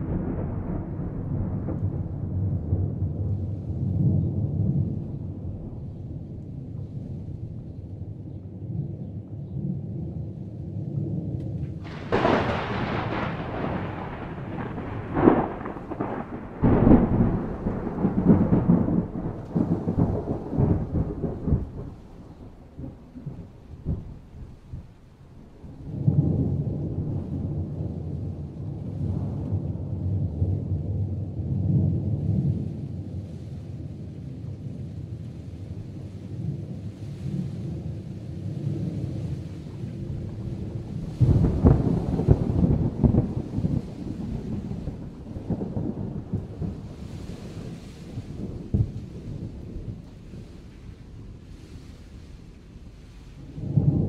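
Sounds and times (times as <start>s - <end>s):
low rumble of thunder: 0.0s - 54.0s
thunder cracks and rumble: 0.0s - 54.0s
rain hissing: 11.6s - 26.5s, 35.0s - 54.0s.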